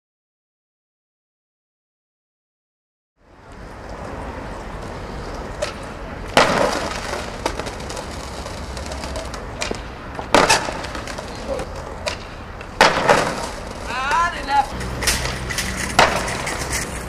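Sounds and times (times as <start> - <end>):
skateboard wheels rolling on paving: 3.2 - 17.0
skateboard and body slamming ground: 3.5 - 17.0
skateboard clacks: 4.8 - 17.0.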